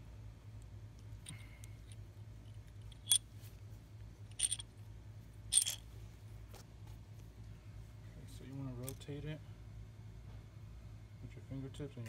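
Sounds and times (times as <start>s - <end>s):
metal tube clinking: 4.4s - 4.6s, 5.5s - 5.8s.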